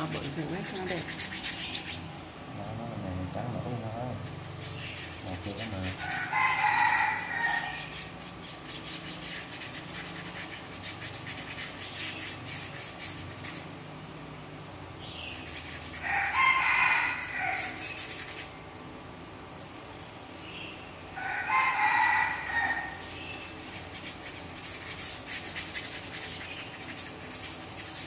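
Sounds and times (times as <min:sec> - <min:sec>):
paintbrush scrubbing cardboard: 0:00.0 - 0:02.1, 0:03.6 - 0:13.7, 0:15.3 - 0:18.6, 0:21.5 - 0:28.0
rooster crowing: 0:06.0 - 0:08.0, 0:16.0 - 0:18.0, 0:21.2 - 0:23.1.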